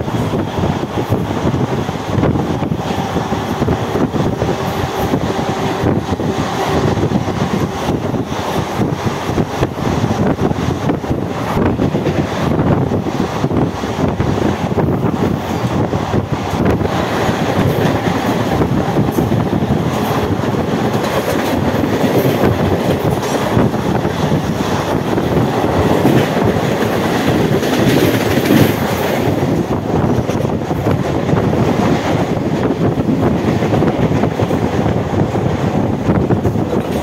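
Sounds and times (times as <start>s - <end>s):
train passing with rush of air: 0.0s - 37.0s
wheels clacking over rail joints: 14.5s - 37.0s.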